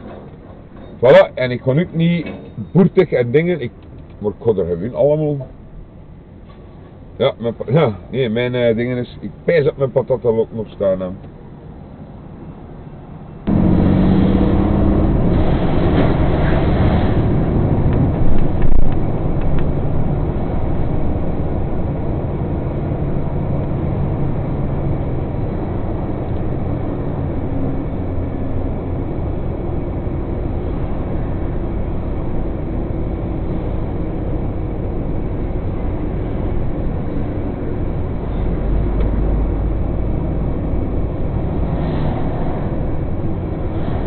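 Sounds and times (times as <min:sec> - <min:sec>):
truck engine with road noise: 0:00.0 - 0:44.0
deep rumble: 0:13.4 - 0:44.0.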